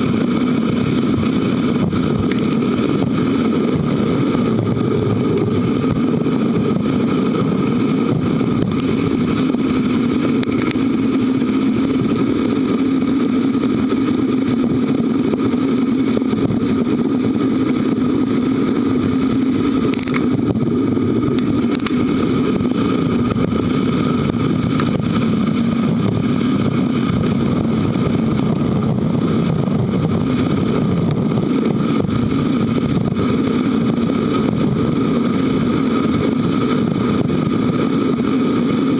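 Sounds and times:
bicycle riding rumble: 0:00.0 - 0:38.9.

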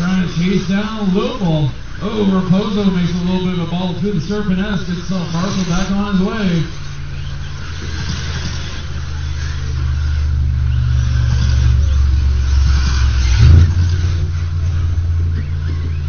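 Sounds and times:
electric rc buggies racing: 0:00.0 - 0:16.0
heavy low rumble: 0:00.0 - 0:16.0.

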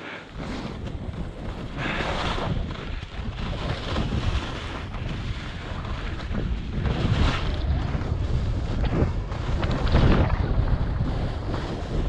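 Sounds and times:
skis scraping across snow: 0:00.0 - 0:12.0
wind rumble on microphone: 0:00.3 - 0:12.0.

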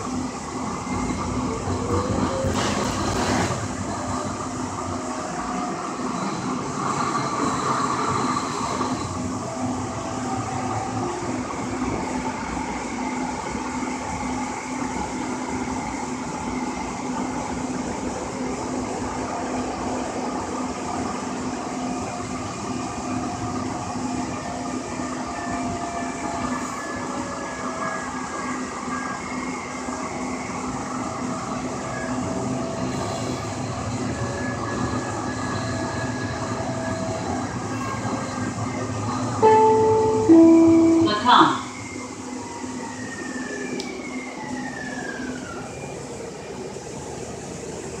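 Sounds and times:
train hum and rolling noise: 0:00.0 - 0:48.0
wheels rumbling on rails: 0:00.0 - 0:48.0
faint high whines: 0:24.8 - 0:46.6
low hum: 0:39.4 - 0:41.9.

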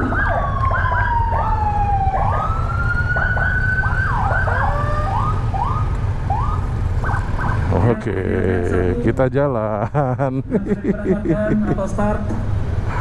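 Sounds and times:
siren wailing: 0:00.0 - 0:08.1.

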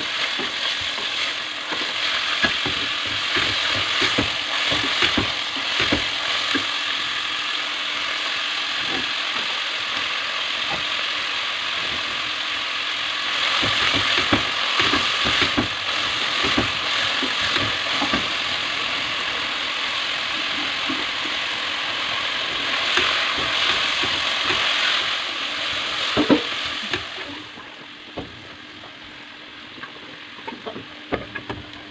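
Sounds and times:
vegetables sizzling in hot oil: 0:00.0 - 0:29.7.

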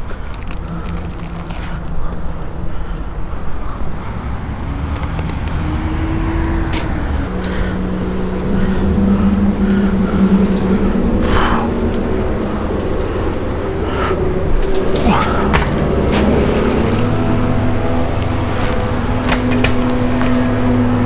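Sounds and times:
motor engine droning: 0:00.0 - 0:21.0
wire trap clicking and knocking: 0:04.9 - 0:05.6, 0:06.4 - 0:07.5, 0:19.2 - 0:20.3.

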